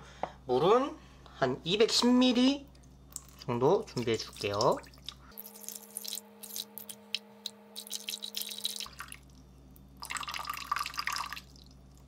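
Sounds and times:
water pouring into metal bowl: 4.0s - 7.0s, 7.8s - 9.3s, 10.0s - 11.7s
water trickling and dripping: 4.0s - 9.4s.

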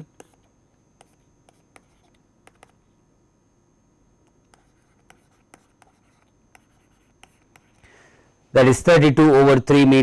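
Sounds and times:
stylus tapping on tablet screen: 1.0s - 2.8s.

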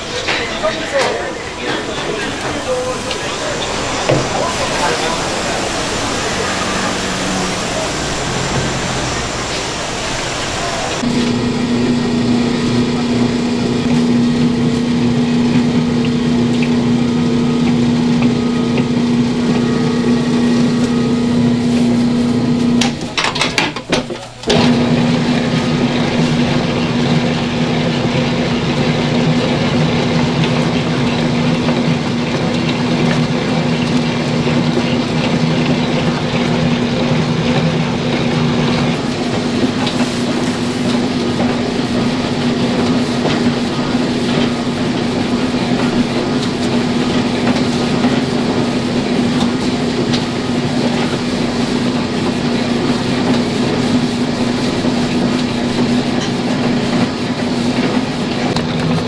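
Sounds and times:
electric motor humming: 1.0s - 22.8s.

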